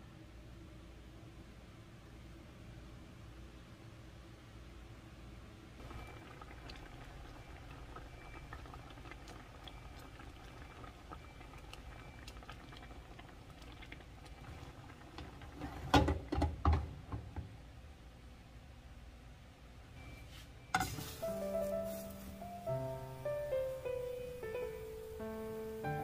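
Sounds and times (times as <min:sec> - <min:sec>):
beans bubbling in a pan: 0:05.8 - 0:17.4, 0:20.8 - 0:23.6.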